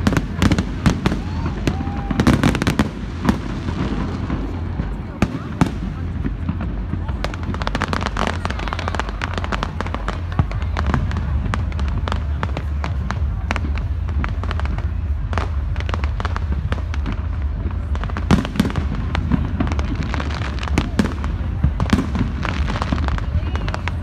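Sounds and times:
fireworks bangs and crackles: 0.0s - 24.0s
low rumble: 0.0s - 24.0s.

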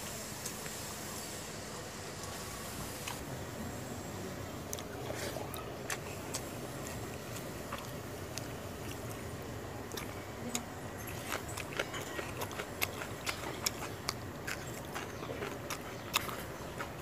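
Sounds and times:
person chewing with mouth clicks: 4.6s - 17.0s.

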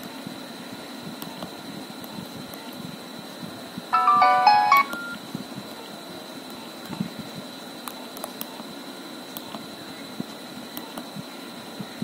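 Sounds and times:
phone ringtone notes: 4.0s - 5.2s.

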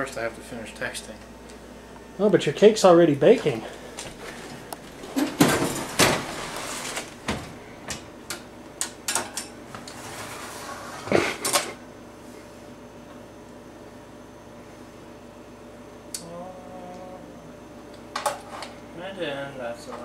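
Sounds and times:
oven door opening: 5.0s - 8.0s.

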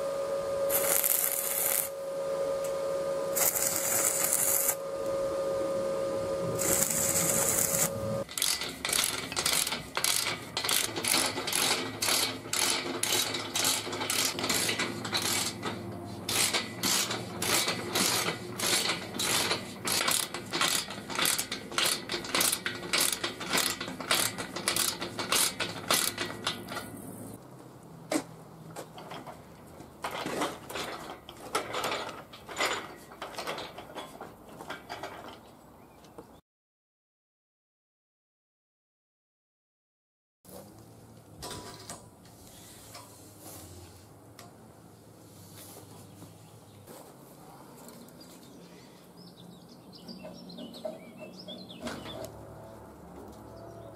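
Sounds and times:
welding arc crackling: 0.6s - 2.0s, 3.3s - 5.2s, 6.3s - 15.6s, 16.3s - 26.2s
ratchet wrench clicking: 6.6s - 15.6s, 16.3s - 26.7s.

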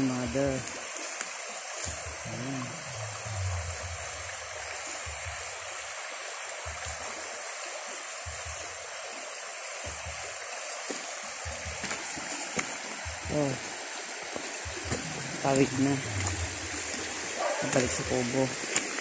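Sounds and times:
creek running over gravel: 0.0s - 19.0s
soft low thumps: 1.9s - 5.6s, 8.2s - 8.7s, 11.4s - 13.6s, 14.4s - 17.3s.

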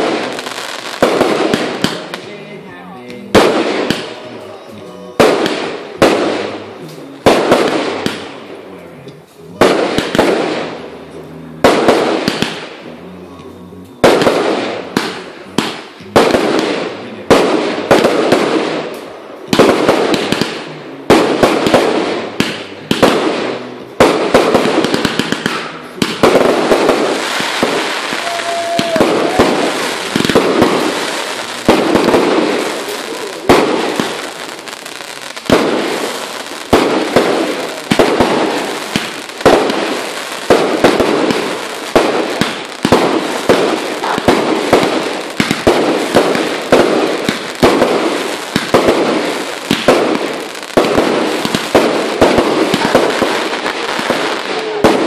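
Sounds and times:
fireworks loud bangs: 0.0s - 8.7s, 9.4s - 13.0s, 13.9s - 55.0s
fireworks crackling: 0.0s - 55.0s.

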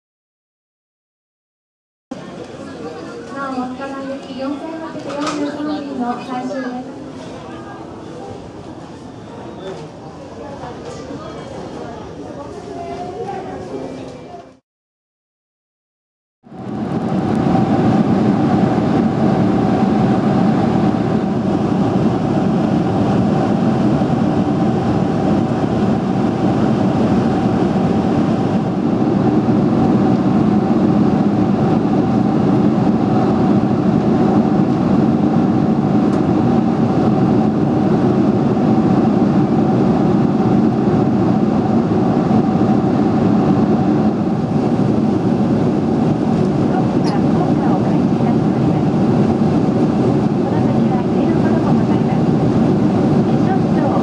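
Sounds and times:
airplane cabin drone: 16.4s - 54.0s
constant mid-pitched hum: 16.6s - 54.0s.

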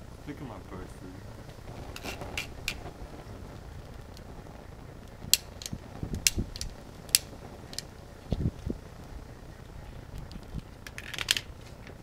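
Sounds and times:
dull low thumps: 1.3s - 10.7s
lighter trigger clicking: 5.3s - 7.9s.

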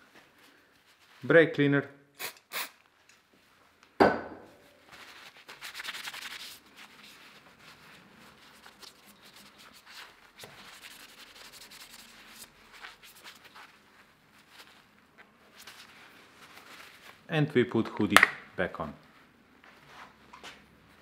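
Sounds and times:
paper towel wiping: 0.2s - 1.3s, 4.8s - 17.3s
sharp knock: 4.0s - 4.5s.

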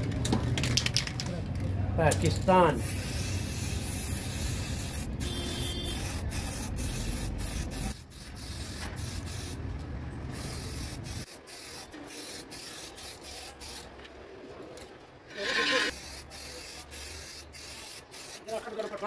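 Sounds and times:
spray-paint can hissing: 2.8s - 9.6s, 10.3s - 13.9s, 15.4s - 18.8s.

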